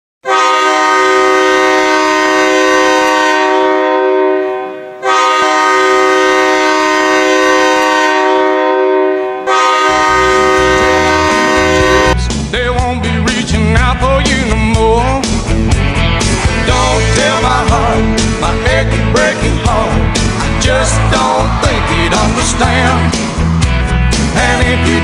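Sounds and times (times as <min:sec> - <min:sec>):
hockey goal horn blasts: 0:00.2 - 0:12.2
music with heavy beat: 0:10.2 - 0:25.0.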